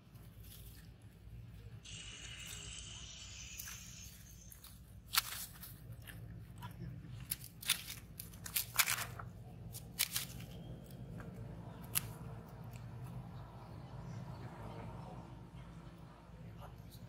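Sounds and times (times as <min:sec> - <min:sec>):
dry leaves crunching: 0:03.6 - 0:06.0, 0:07.3 - 0:10.6.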